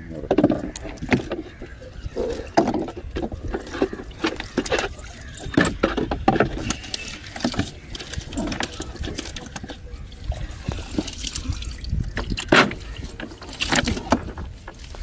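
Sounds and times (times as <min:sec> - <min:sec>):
knocks in wooden boat: 0:02.6 - 0:04.8, 0:12.1 - 0:14.5.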